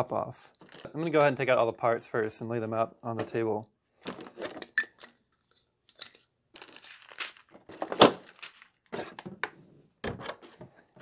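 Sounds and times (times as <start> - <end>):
plastic packaging crinkling: 0.6 - 0.9, 5.9 - 9.0.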